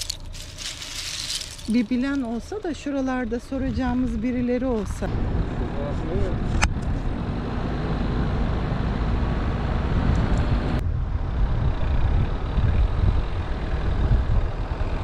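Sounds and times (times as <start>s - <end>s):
road and engine rumble: 0.0s - 15.0s
wind rushing over microphone: 9.3s - 15.0s.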